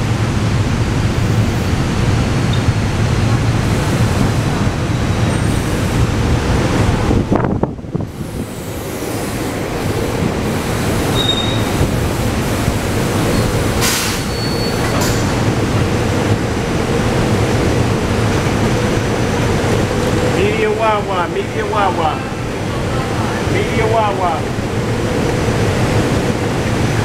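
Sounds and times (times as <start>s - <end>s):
train wheels rumbling: 0.0s - 27.0s
wheel or brake squeals: 11.1s - 11.8s, 13.2s - 15.3s
short hiss: 13.8s - 14.4s.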